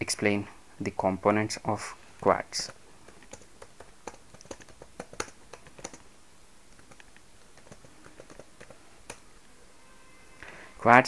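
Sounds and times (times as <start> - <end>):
typing on computer keyboard: 2.6 - 6.0, 6.8 - 9.2.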